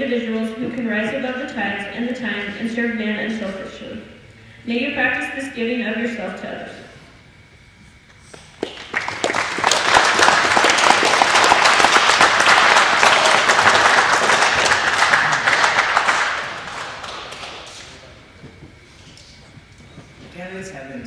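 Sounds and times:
audience applauding: 8.5 - 18.3.

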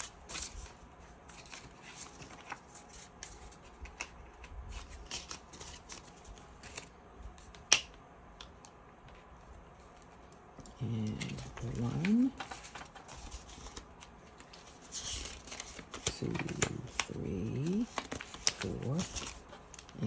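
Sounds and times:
paper banknotes rustling: 0.0 - 7.6, 9.8 - 20.0
plastic pages flipping: 0.0 - 20.0.

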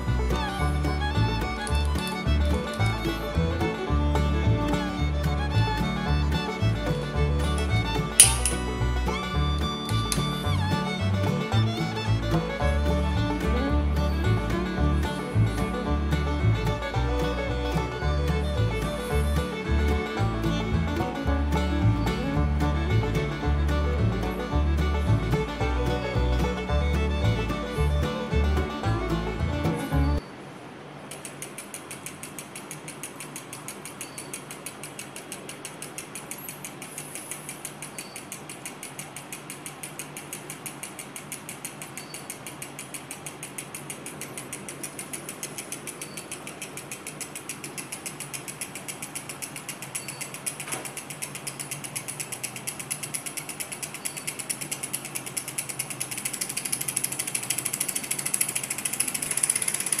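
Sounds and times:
small engine rapid clicking: 31.1 - 60.0.

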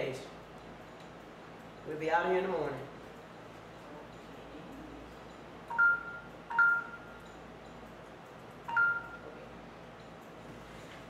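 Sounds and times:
two-tone electronic beeps: 5.7 - 7.2, 8.7 - 9.2.

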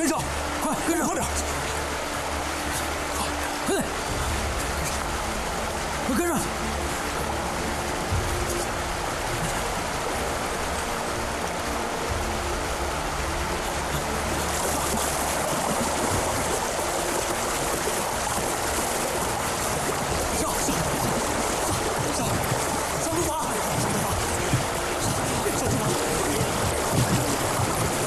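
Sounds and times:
river water rushing: 0.0 - 28.0.

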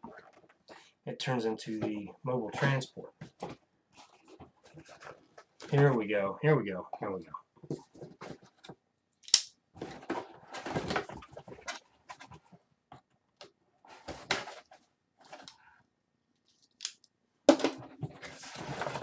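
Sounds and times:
cardboard rustling and scraping: 2.6 - 6.0, 9.8 - 12.6, 13.9 - 15.5, 17.9 - 19.0.

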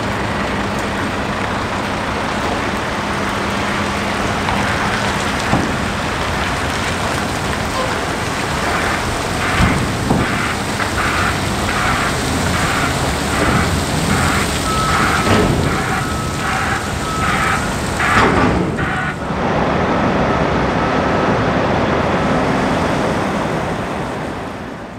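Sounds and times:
vehicle traffic: 0.0 - 24.9
wind: 0.0 - 24.9
vehicle reversing alarm: 7.6 - 22.7.

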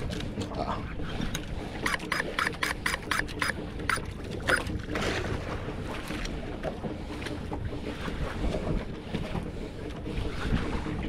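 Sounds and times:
boat engine humming: 0.0 - 11.0
rush of wind or water: 0.0 - 11.0
fishing reel clicking: 1.8 - 4.1.

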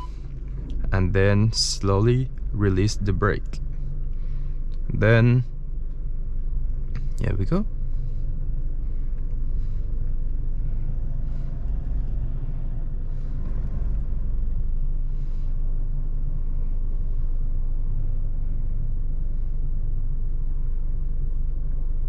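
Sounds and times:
car engine idling from inside: 0.0 - 22.0.

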